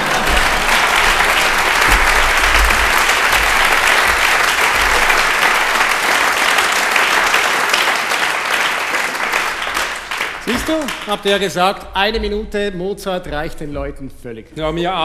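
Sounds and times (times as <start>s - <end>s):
large audience applauding: 0.0s - 11.7s.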